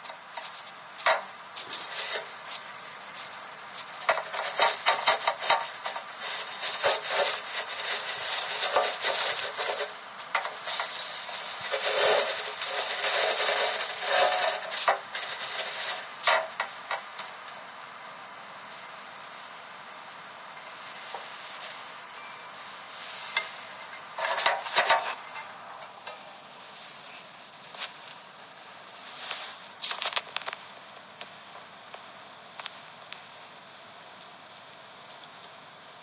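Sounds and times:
rubbing on phone microphone: 0:01.6 - 0:09.9.

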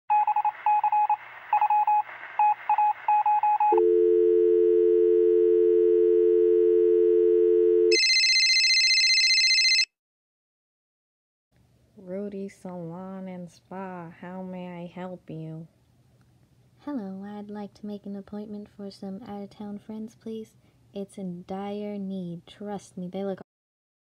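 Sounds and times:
keypad dialing beeps: 0:00.1 - 0:04.0
shrill high telephone tone: 0:00.1 - 0:09.9
low two-note telephone tone: 0:03.5 - 0:09.9.

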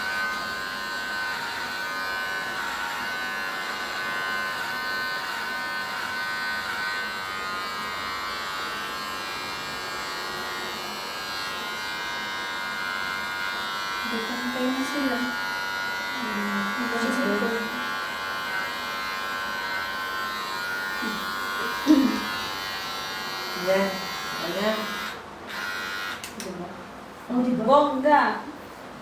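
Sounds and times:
electric hair clippers buzzing: 0:00.0 - 0:26.6.

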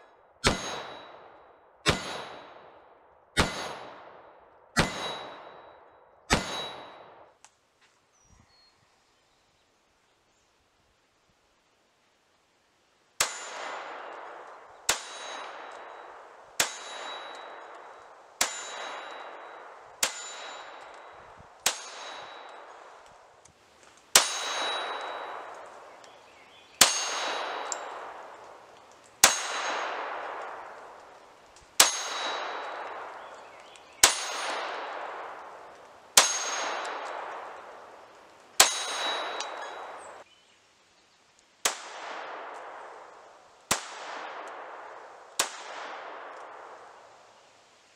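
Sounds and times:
pistol shots echoing: 0:00.4 - 0:07.3, 0:13.2 - 0:23.1, 0:24.1 - 0:26.0, 0:26.8 - 0:31.2, 0:31.8 - 0:40.2, 0:41.6 - 0:43.1, 0:43.7 - 0:47.2.

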